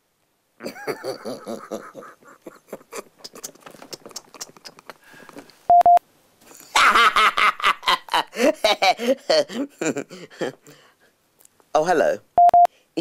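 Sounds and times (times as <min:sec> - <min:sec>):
man laughing: 0:00.6 - 0:05.6, 0:06.5 - 0:10.8.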